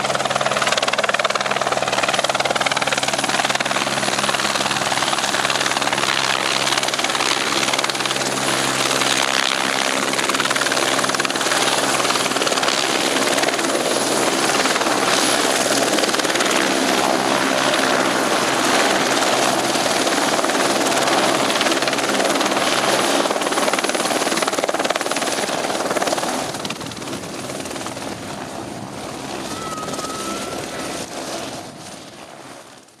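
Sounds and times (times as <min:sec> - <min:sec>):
high turbine whine: 0:00.0 - 0:32.2
helicopter rotor noise: 0:00.0 - 0:33.0.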